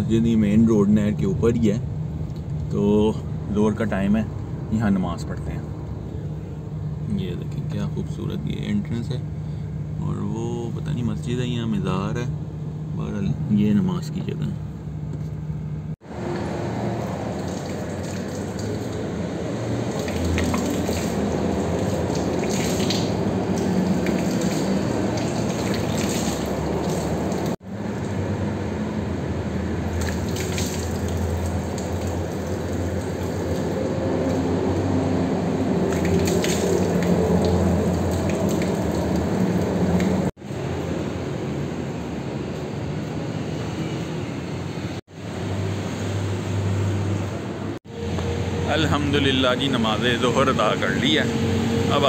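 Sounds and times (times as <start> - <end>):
water running from a tap: 17.0 - 19.1, 19.8 - 27.6, 29.9 - 34.4, 35.8 - 40.3.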